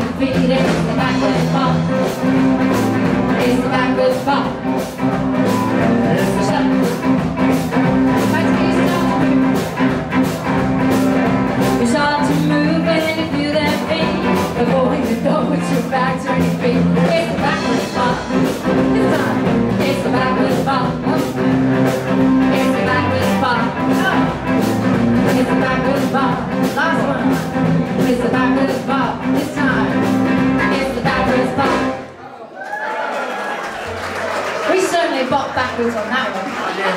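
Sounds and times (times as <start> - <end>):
woman singing: 0.0 - 4.8, 6.0 - 7.2, 8.1 - 9.6, 11.6 - 32.0
drum kit beat: 0.0 - 32.0
guitars: 0.0 - 32.1
upright bass: 0.0 - 32.1.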